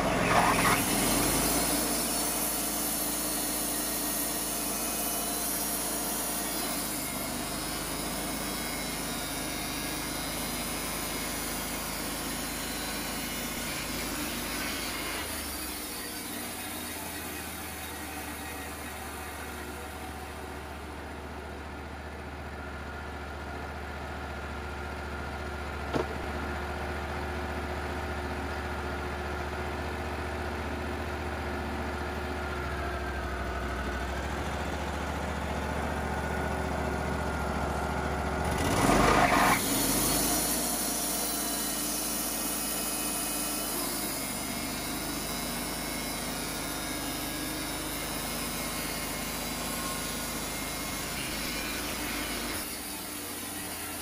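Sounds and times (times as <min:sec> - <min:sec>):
band blade cutting log: 0:00.0 - 0:19.9, 0:25.9 - 0:26.3
sawmill engine running: 0:00.0 - 0:54.0.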